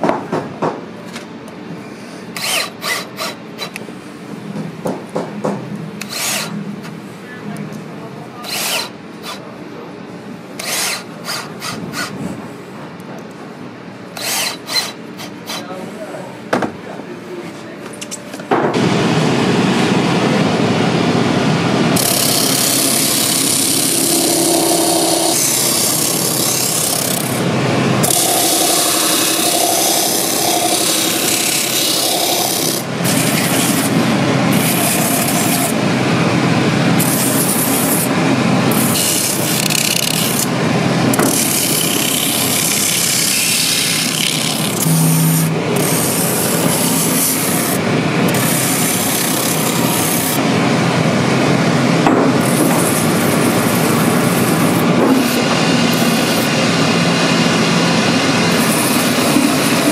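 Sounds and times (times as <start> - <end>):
sanding wheel grinding boot sole: 22.0 - 27.4, 28.0 - 35.8, 41.2 - 50.4, 52.4 - 56.6, 58.5 - 59.9.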